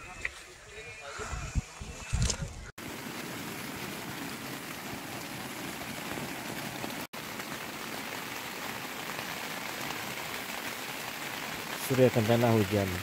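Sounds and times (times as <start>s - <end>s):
rain falling steadily: 2.7s - 13.0s.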